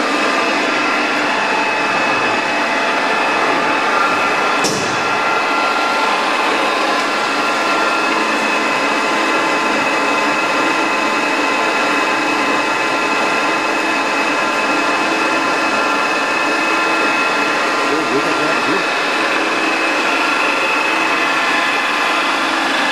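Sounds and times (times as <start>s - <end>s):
lathe running with whining gears: 0.0s - 22.9s.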